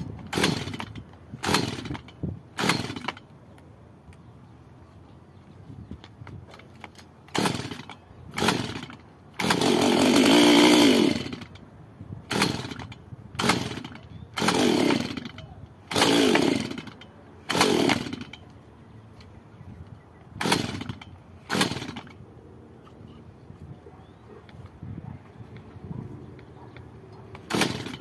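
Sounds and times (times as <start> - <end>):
chainsaw engine revving: 0.0 - 3.2, 7.2 - 11.6, 12.3 - 18.4, 20.4 - 22.2, 27.3 - 28.0.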